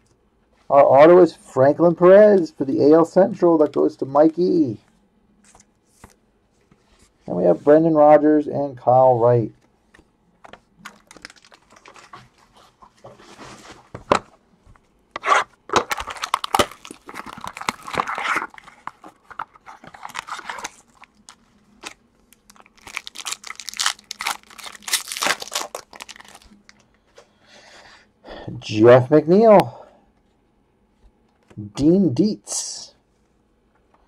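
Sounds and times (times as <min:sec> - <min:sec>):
plastic wrapping crinkling and tearing: 0:10.7 - 0:12.6, 0:15.2 - 0:26.9.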